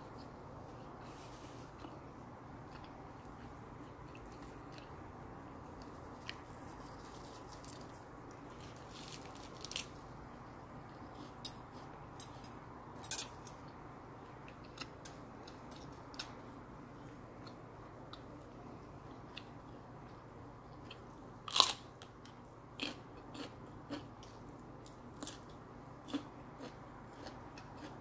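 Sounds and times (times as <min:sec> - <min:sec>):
low steady hum: 0:00.0 - 0:28.0
crisp chewing crackles: 0:05.7 - 0:10.2.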